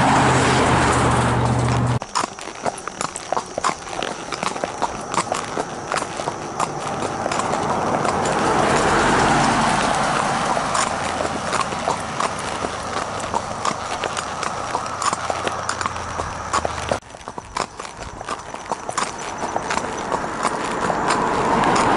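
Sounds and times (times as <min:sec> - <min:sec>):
car passing by: 0:00.0 - 0:02.0, 0:06.0 - 0:17.0, 0:19.5 - 0:21.9
horse hooves clip-clopping on asphalt: 0:00.0 - 0:21.9.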